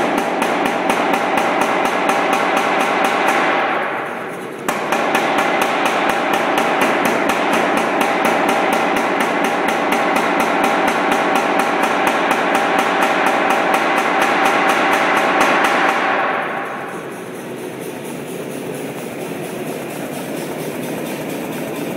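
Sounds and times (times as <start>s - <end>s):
power hammer striking hot metal: 0.0s - 21.9s
hammer motor running: 16.4s - 21.9s.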